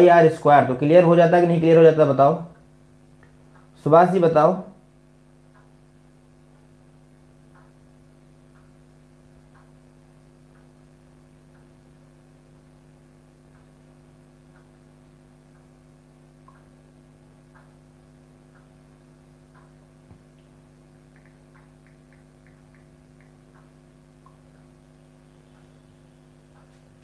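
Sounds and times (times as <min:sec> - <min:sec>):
electrical hum: 0:00.0 - 0:27.0
soft ticking: 0:02.5 - 0:03.8, 0:05.3 - 0:27.0
higher ticks: 0:18.5 - 0:27.0.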